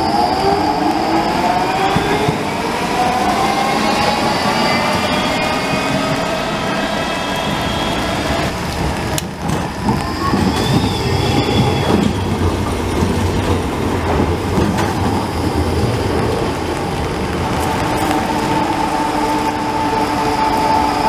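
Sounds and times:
tram wheels rumbling on track: 0.0 - 21.0
high wheel squeal: 3.0 - 8.5, 10.0 - 12.4.

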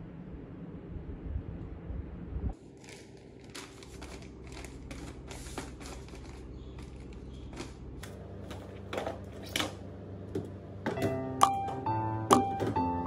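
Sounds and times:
plastic packets crinkling: 2.6 - 8.0.

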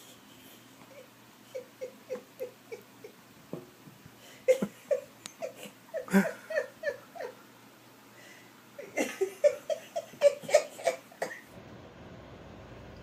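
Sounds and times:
person laughing: 4.5 - 7.4, 8.8 - 11.1.

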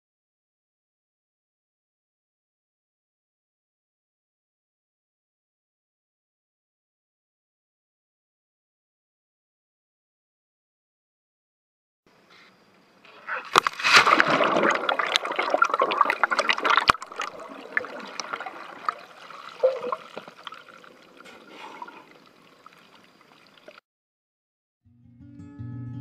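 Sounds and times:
underwater air bubbles gurgling: 14.1 - 23.8.

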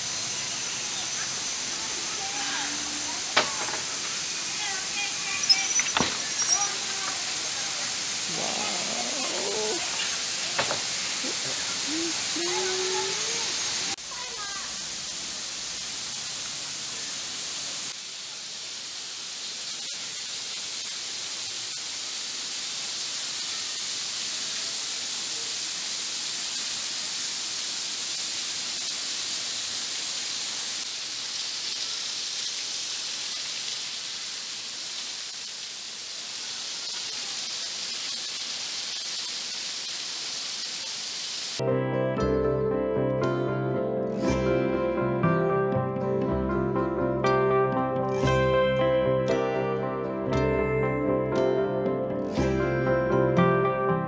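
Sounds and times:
waterfall rushing hiss: 0.0 - 41.6.

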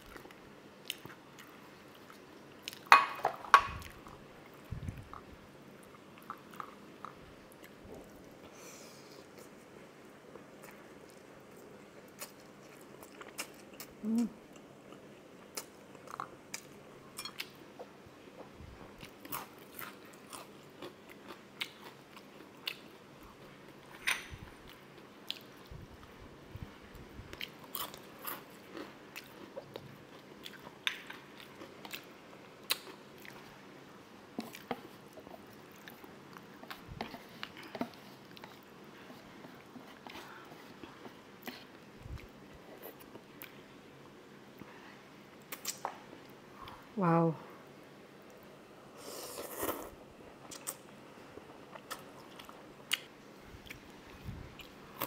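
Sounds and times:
person chewing and crunching food: 3.7 - 23.9, 26.9 - 33.6, 34.3 - 43.6, 49.0 - 55.0
mouth clicks and smacks: 45.5 - 46.0.

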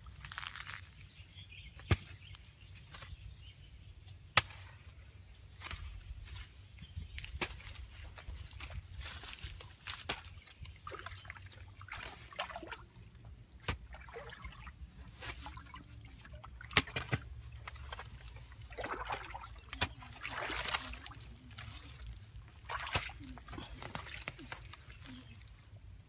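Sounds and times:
water splashing and trickling: 7.6 - 26.0.

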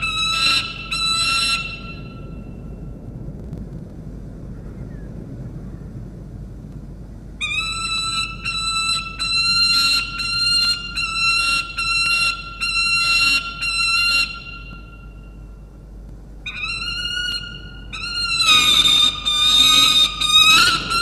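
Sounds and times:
falcon squawking: 0.0 - 2.4, 7.4 - 15.3, 16.4 - 21.0
falcon wailing: 0.0 - 2.6, 7.4 - 15.8, 16.4 - 21.0.

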